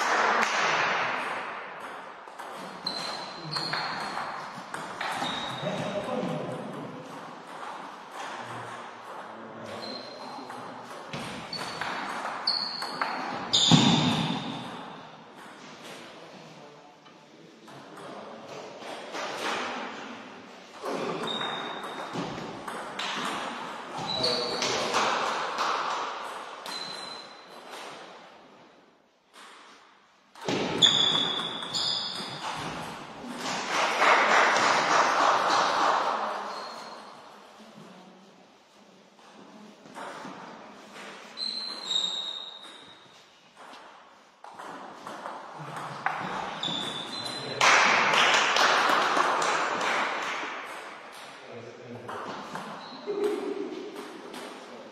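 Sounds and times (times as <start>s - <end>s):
short high squeaks: 2.8s - 4.1s, 5.1s - 5.6s, 9.7s - 10.3s, 11.5s - 11.8s, 12.4s - 14.7s, 26.6s - 27.6s, 30.8s - 32.4s, 36.5s - 37.1s, 41.4s - 43.1s, 46.6s - 47.6s.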